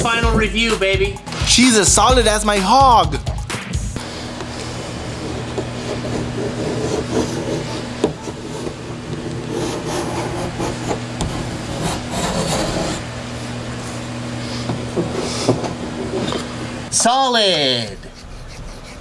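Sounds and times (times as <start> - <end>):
steady low hum: 2.0 - 19.0.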